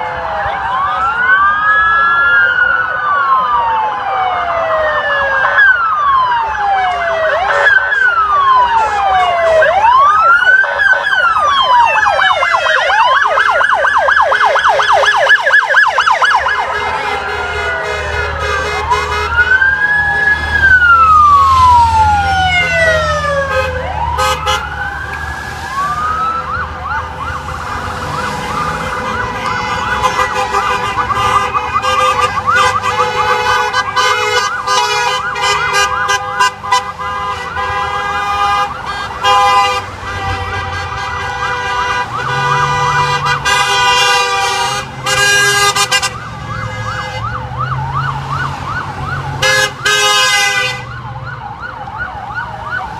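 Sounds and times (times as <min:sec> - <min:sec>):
emergency sirens wailing and yelping: 0:00.0 - 0:52.9.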